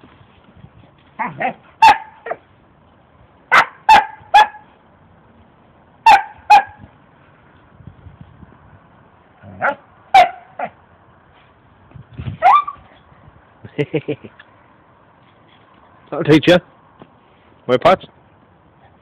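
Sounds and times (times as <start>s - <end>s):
dog barking: 1.2s - 2.4s, 3.5s - 4.7s, 6.0s - 6.8s, 9.6s - 10.8s, 12.4s - 12.8s.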